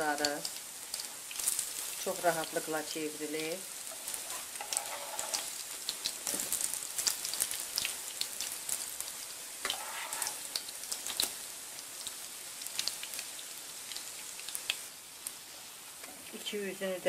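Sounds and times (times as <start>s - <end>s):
fritters sizzling in hot oil: 0.0s - 17.0s
spatula sliding in a pan: 3.9s - 5.6s, 9.6s - 10.6s.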